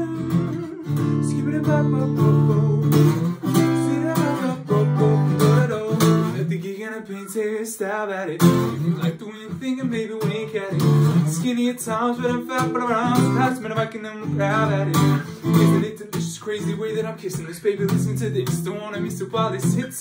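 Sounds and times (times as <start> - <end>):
acoustic guitar strumming: 0.0 - 20.0
man singing: 0.0 - 20.0.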